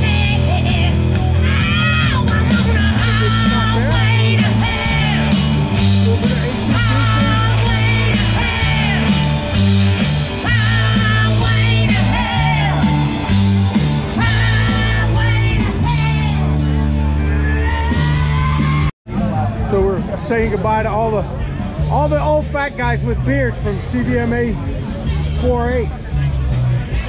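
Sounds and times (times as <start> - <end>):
person singing: 0.0 - 9.5
live rock band playing: 0.0 - 27.0.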